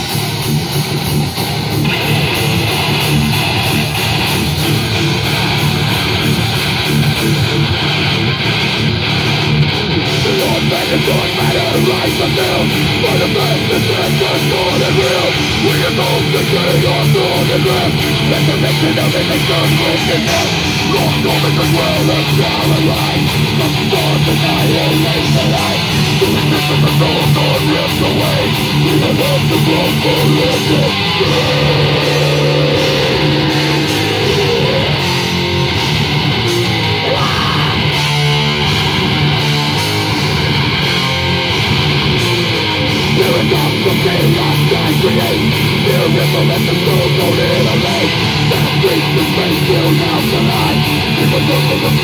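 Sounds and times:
heavy metal band playing loudly: 0.0s - 52.0s.

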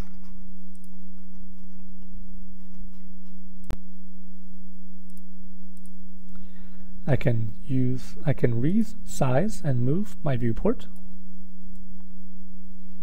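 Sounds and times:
steady low hum: 0.0s - 13.0s
computer mouse clicks: 5.1s - 6.0s.

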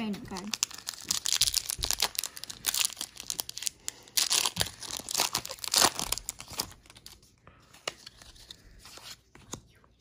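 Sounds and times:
foil wrapper tearing: 0.6s - 6.8s.

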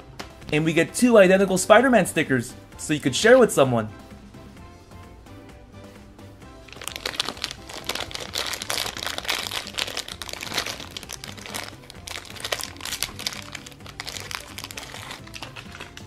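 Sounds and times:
background music: 0.0s - 16.0s
plastic wrapper crinkling: 6.7s - 16.0s.

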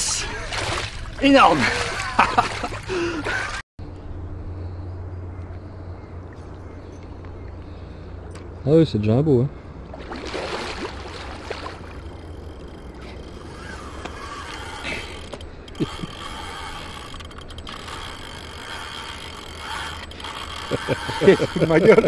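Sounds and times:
water splashing: 0.0s - 3.6s, 9.8s - 12.4s
fishing reel drag ratcheting: 12.0s - 22.0s.

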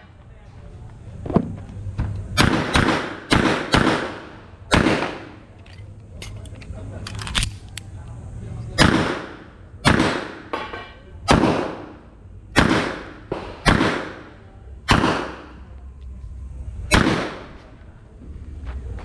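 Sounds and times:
pistol shots echoing: 2.4s - 5.4s, 8.8s - 15.6s, 16.9s - 17.5s.

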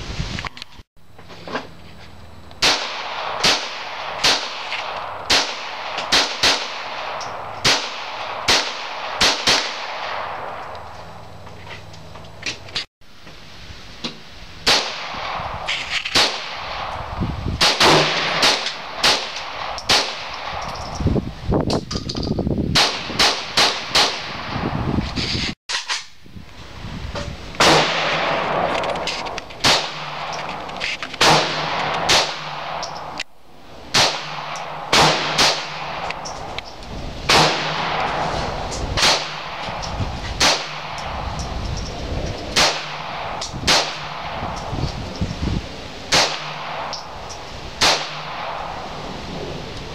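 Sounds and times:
pistol shots with echo: 2.6s - 10.6s, 14.6s - 17.0s, 17.6s - 20.9s, 22.8s - 24.5s, 27.6s - 30.5s, 31.2s - 33.2s, 33.9s - 36.4s, 37.3s - 41.4s, 42.5s - 44.7s, 46.1s - 48.9s.

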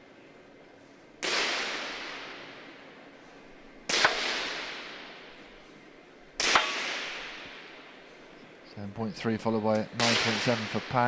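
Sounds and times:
pistol shots with echo: 1.2s - 3.0s, 3.8s - 5.6s, 6.4s - 8.2s, 10.0s - 11.0s.

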